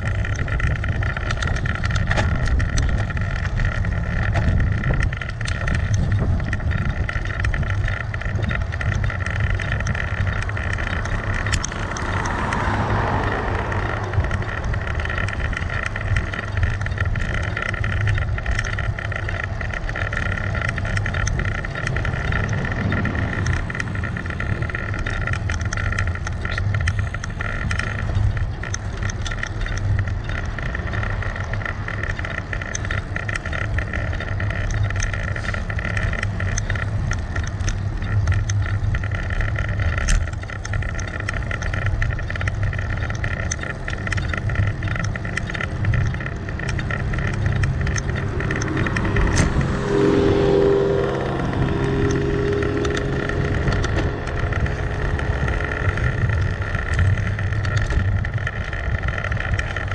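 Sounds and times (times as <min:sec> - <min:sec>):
wind rush: 0:00.0 - 0:18.2, 0:20.3 - 0:28.6, 0:44.0 - 0:59.9
road rumble: 0:00.0 - 0:59.9
small rattling ticks: 0:00.0 - 0:59.9.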